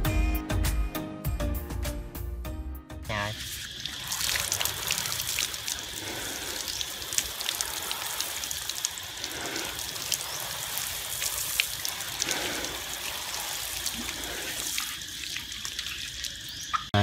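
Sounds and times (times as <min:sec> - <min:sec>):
water spraying from hose nozzle: 0:03.1 - 0:16.9
water drops clicking on leaves: 0:03.4 - 0:16.9.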